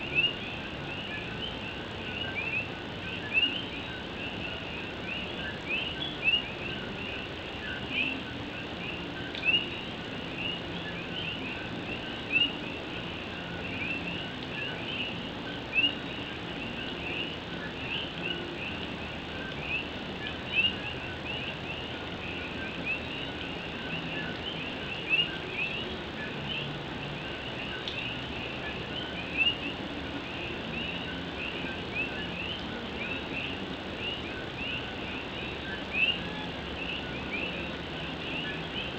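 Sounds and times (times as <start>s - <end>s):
frogs calling in chorus: 0.0s - 38.9s
rain hissing: 0.0s - 38.9s.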